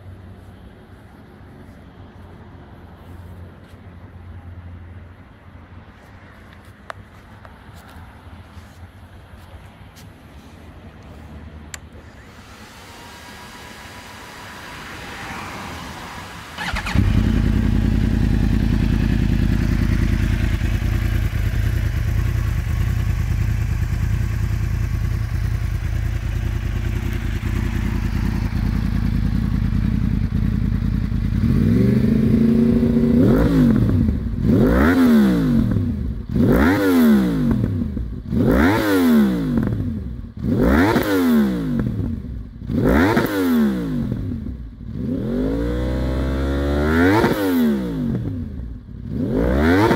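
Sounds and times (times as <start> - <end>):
motorcycle engine starting and idling: 11.6 - 49.9
motorcycle engine revving: 12.0 - 49.9.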